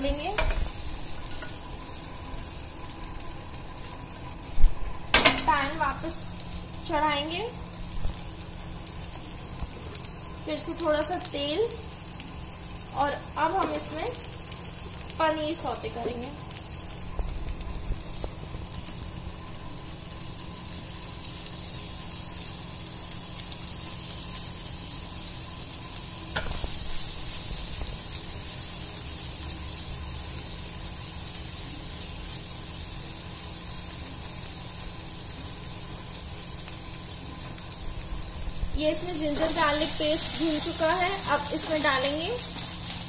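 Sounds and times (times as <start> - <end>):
cheese sizzling in hot oil: 0.0 - 43.0.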